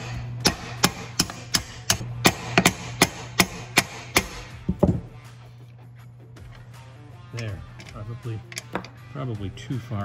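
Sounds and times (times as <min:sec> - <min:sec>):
small hammer tapping metal: 0:00.4 - 0:04.4.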